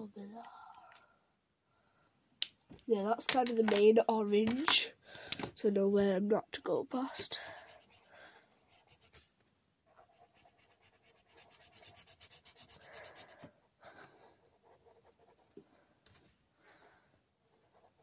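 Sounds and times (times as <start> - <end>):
marker rubbing on paper: 7.2 - 9.3, 9.9 - 13.5.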